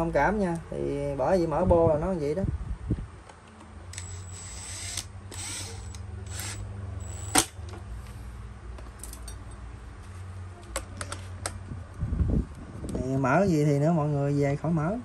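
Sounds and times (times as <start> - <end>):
electric screwdriver whirring: 4.0 - 7.6.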